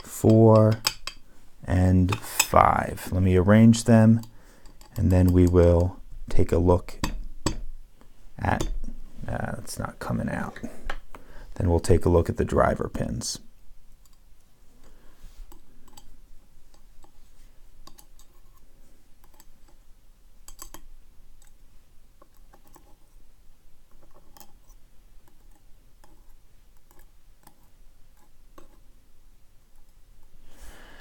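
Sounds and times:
tweezers and pins clicking on metal: 0:00.0 - 0:01.2, 0:04.1 - 0:06.0, 0:17.8 - 0:18.5, 0:19.2 - 0:19.8, 0:20.4 - 0:21.6, 0:24.0 - 0:28.8.

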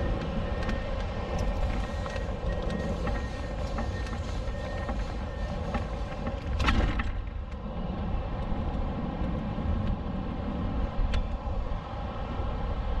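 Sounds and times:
wind buffeting microphone: 0:00.0 - 0:13.0.

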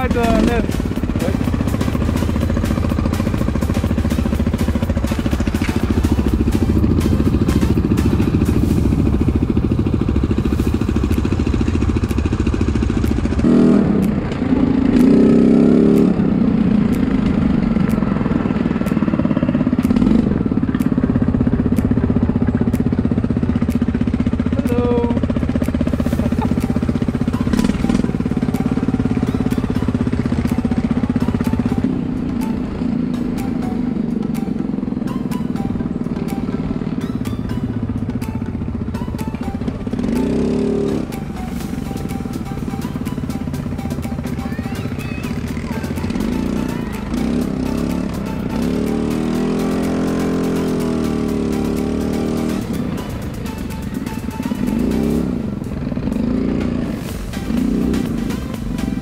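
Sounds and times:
sharp rattles and knocks: 0:00.0 - 0:24.6
quad bike engine running: 0:00.0 - 0:59.0.

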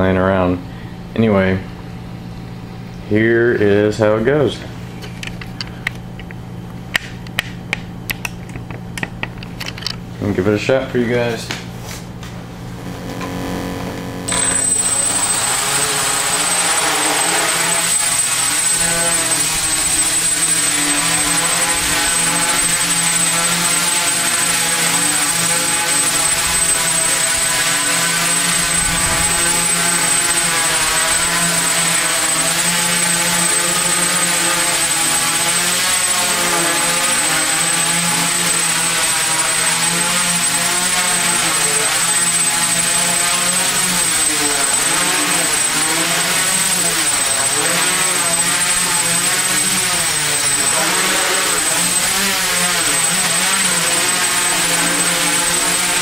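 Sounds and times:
steady high motor whine: 0:12.2 - 0:56.0
quadcopter propeller buzz: 0:12.8 - 0:56.0.

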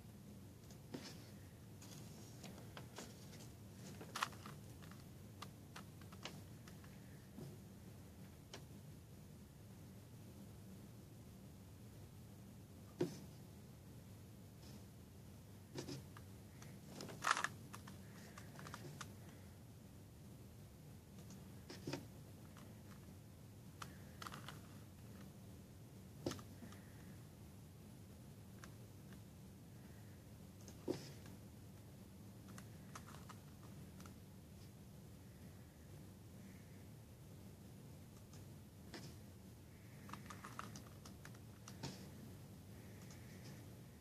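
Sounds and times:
faint steady hum: 0:00.0 - 0:44.0
puzzle cube clicking: 0:17.1 - 0:19.2, 0:40.0 - 0:41.8.

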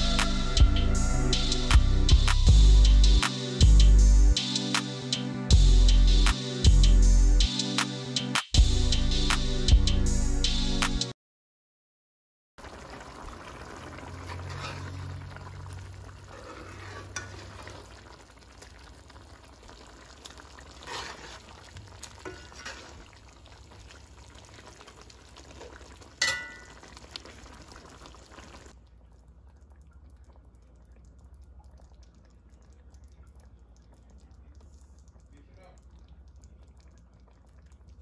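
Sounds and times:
stew sizzling: 0:12.6 - 0:28.8
spoon scraping and clinking pot: 0:16.3 - 0:17.8, 0:22.2 - 0:23.0, 0:26.2 - 0:26.8
faint low hum: 0:28.8 - 0:38.0.

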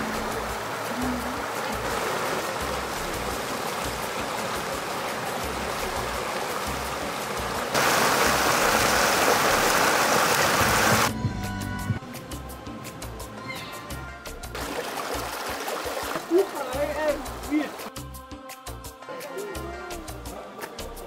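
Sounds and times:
water rushing over a weir: 0:00.0 - 0:11.1, 0:14.5 - 0:17.9.

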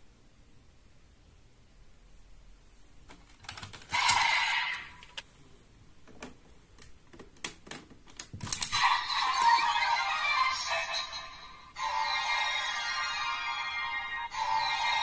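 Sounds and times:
toy belt electronic sound effect: 0:03.9 - 0:05.0, 0:08.7 - 0:15.0.

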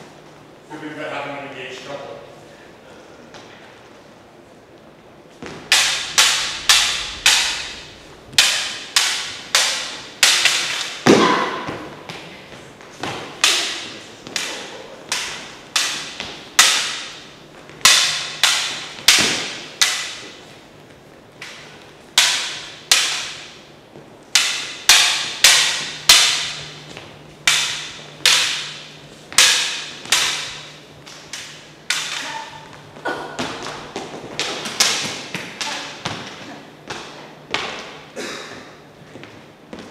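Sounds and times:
plastic lightsaber blades clashing: 0:05.5 - 0:11.9, 0:13.0 - 0:20.4, 0:21.4 - 0:23.6, 0:24.3 - 0:36.2.

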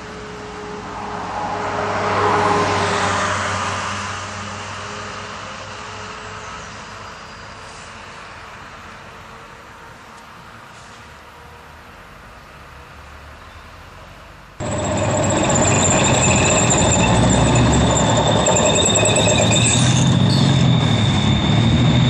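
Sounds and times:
tracked vehicle driving past: 0:00.6 - 0:04.5, 0:14.6 - 0:22.0.

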